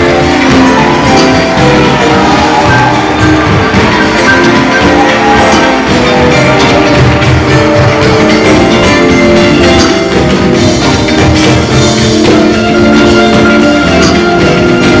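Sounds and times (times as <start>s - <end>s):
drum kit: 0.0s - 15.0s
live church music: 0.0s - 15.0s.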